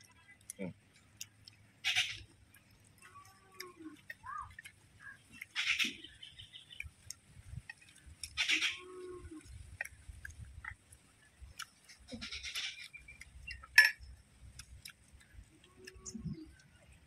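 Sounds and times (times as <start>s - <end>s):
quiet eating sounds: 0.0s - 17.0s
metal spoon clinking on clay pot: 13.7s - 14.1s.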